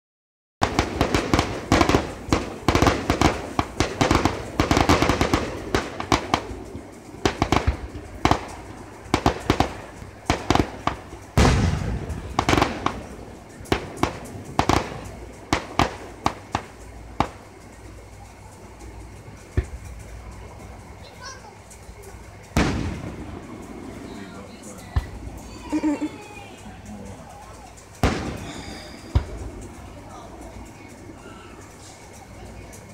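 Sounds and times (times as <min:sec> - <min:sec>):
fireworks bursting with sharp bangs: 0:00.6 - 0:32.9
deep firework boom: 0:09.2 - 0:13.1, 0:22.6 - 0:23.8, 0:28.0 - 0:29.8.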